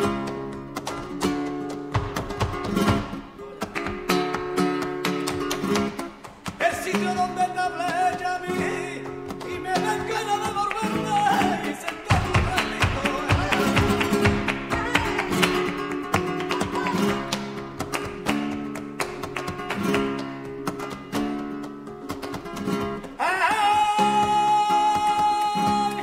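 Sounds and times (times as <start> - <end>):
flamenco guitar strumming: 0.0 - 26.0
person singing: 16.5 - 17.3, 23.2 - 26.0.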